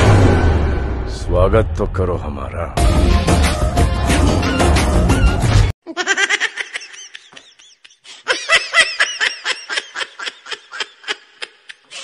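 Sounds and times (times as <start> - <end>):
music: 2.8 - 5.7
high-pitched laughing: 5.8 - 12.0.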